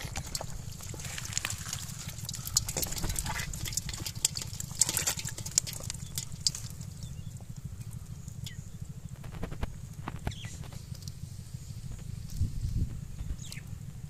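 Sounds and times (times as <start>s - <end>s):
fish splashing in a pot: 0.0s - 8.6s.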